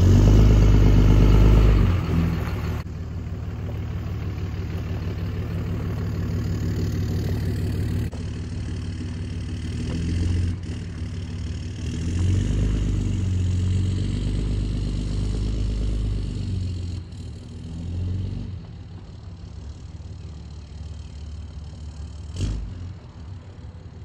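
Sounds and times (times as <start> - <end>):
diesel truck pulling away: 0.0 - 24.0.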